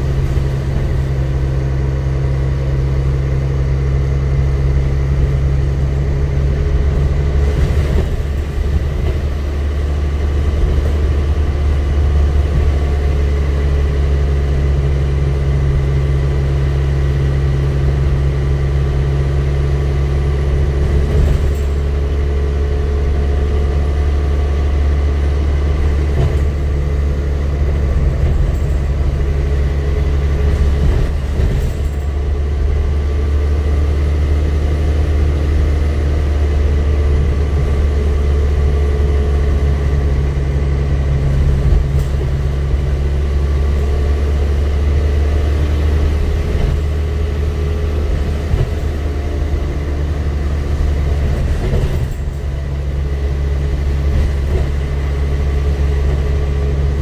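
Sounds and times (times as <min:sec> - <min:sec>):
bus engine drone: 0:00.0 - 0:57.0
road noise: 0:00.0 - 0:57.0
bus body knocks and rattles: 0:05.8 - 0:14.0, 0:20.4 - 0:22.4, 0:25.5 - 0:33.0, 0:41.0 - 0:44.7, 0:45.6 - 0:57.0.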